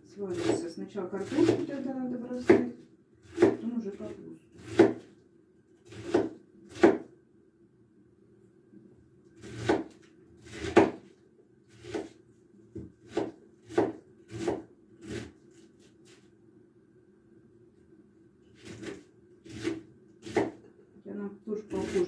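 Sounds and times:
knife shredding cabbage on wooden board: 1.2 - 1.8, 4.6 - 5.1, 5.8 - 7.0, 9.4 - 12.2, 13.0 - 16.3, 18.5 - 20.6, 21.6 - 22.0.

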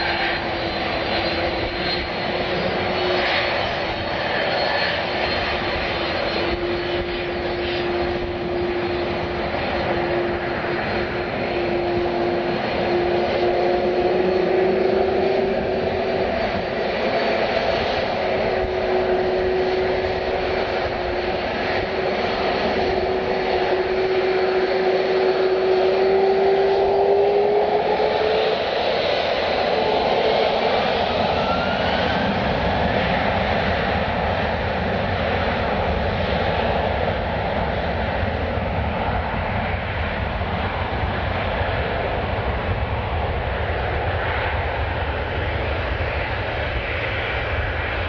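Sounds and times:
jet engines whining: 0.0 - 48.0.

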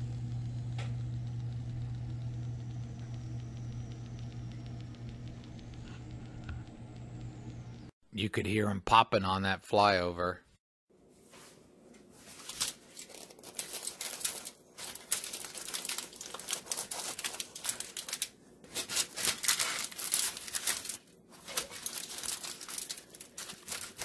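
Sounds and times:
pastry crackling: 12.2 - 24.0.

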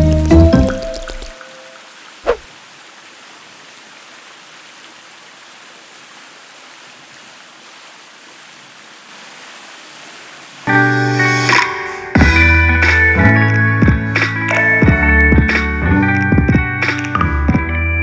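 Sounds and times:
falling swoosh: 2.2 - 2.5.

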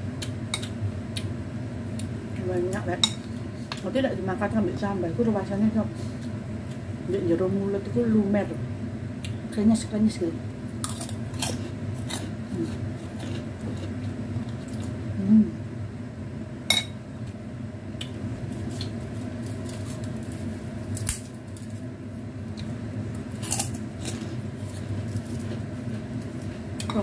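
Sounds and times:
steady low hum: 0.0 - 27.0
crackers crunching: 10.8 - 15.0, 18.0 - 27.0.

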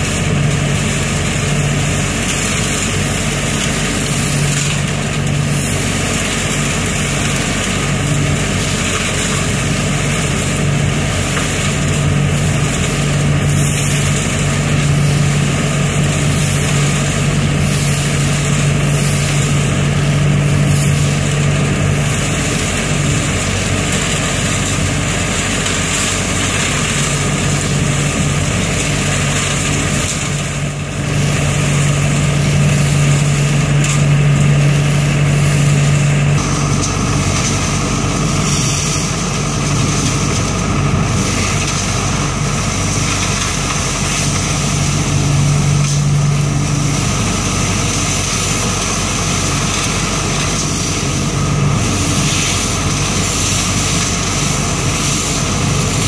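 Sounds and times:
air and leaves sucked up hose: 0.0 - 56.0
leaf vacuum engine droning: 0.0 - 56.0.

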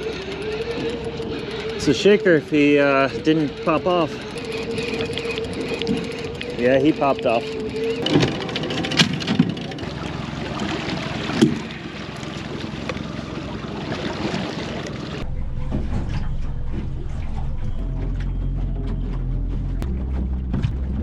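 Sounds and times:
low steady hum: 0.0 - 21.0
wind and water rushing: 8.1 - 16.1.

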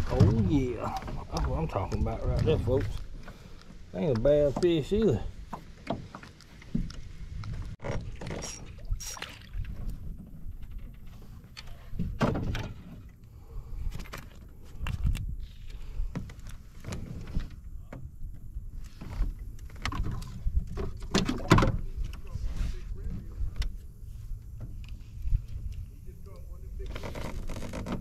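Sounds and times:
knocks and clicks of fishing tackle: 5.5 - 8.7, 19.0 - 22.3.

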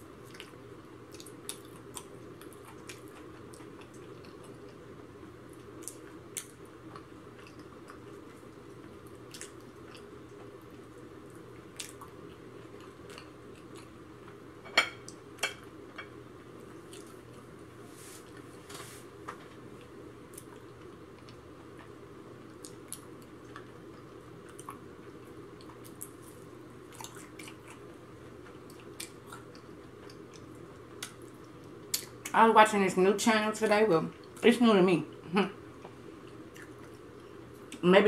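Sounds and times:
steady background hum: 0.0 - 38.0
wet chewing mouth noises: 9.2 - 10.1, 11.8 - 12.2, 24.4 - 27.9, 28.7 - 32.3, 36.2 - 37.8.

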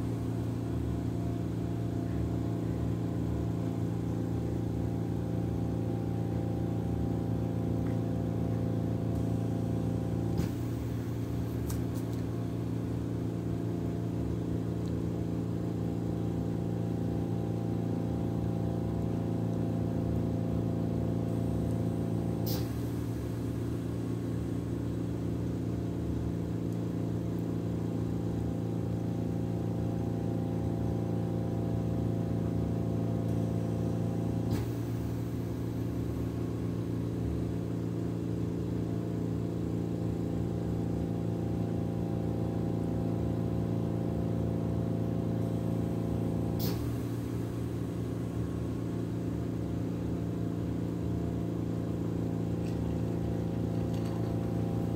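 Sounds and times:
oxygen concentrator humming: 39.7 - 54.9.

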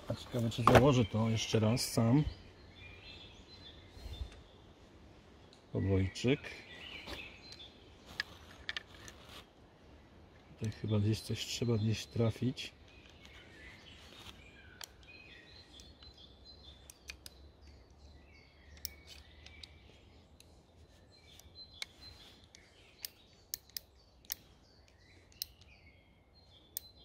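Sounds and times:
faint sharp metallic clicks: 16.8 - 17.9, 18.7 - 20.5, 21.3 - 25.7.

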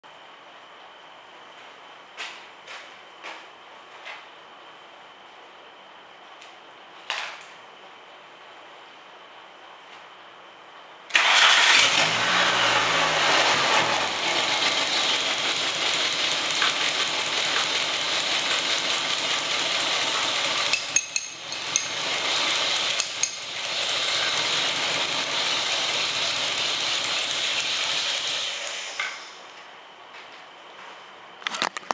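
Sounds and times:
car engine starting and running: 11.1 - 20.8, 21.4 - 29.3.

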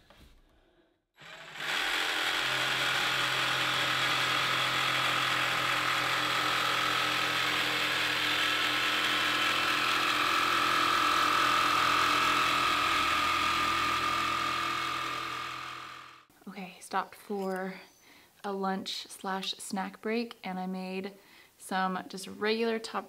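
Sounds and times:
jigsaw cutting wood: 1.2 - 16.3.

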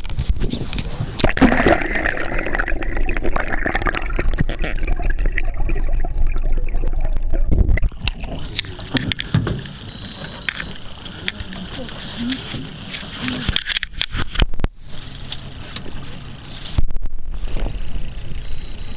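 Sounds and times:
water rushing and gurgling: 0.9 - 13.6.

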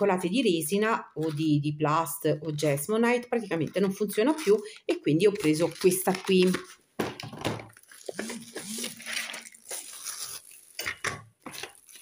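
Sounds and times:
plastic rustling and creaking: 5.2 - 12.0.

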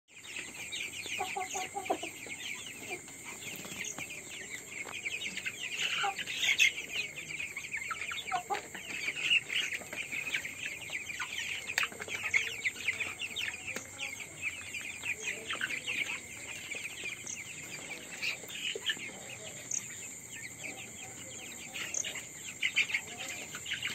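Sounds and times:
chicks peeping: 0.1 - 23.9
low chicken clucks: 0.4 - 4.0, 4.6 - 13.9.

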